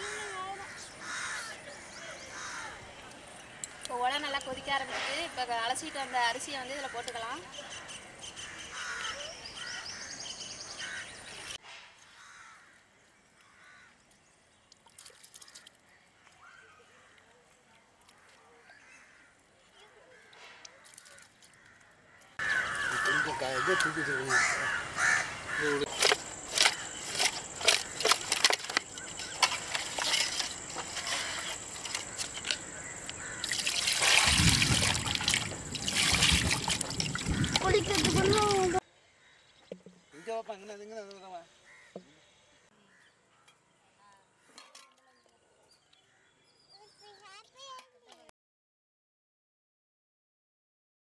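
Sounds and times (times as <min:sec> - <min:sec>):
birds calling: 0:00.0 - 0:17.2, 0:18.1 - 0:47.8
outdoor background noise: 0:00.0 - 0:48.3
water pouring from a jug: 0:14.7 - 0:15.9, 0:25.9 - 0:38.8.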